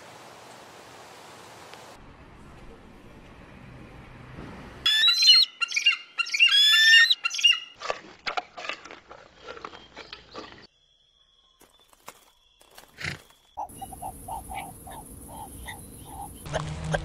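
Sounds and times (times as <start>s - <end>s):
eagle screeching: 4.9s - 7.8s.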